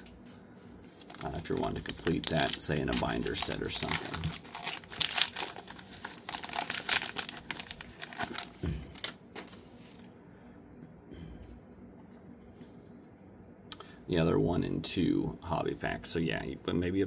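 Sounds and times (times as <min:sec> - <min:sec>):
foil wrapper crinkling: 0:00.8 - 0:10.1.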